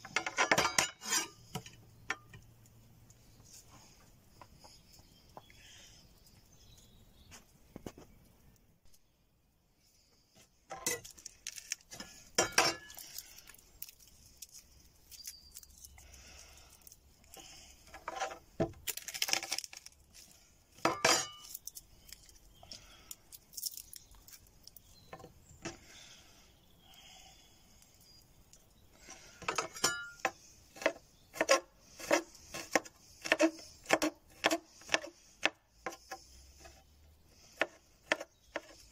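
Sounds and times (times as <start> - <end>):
knife chopping on wooden board: 30.8 - 36.2, 37.6 - 38.8.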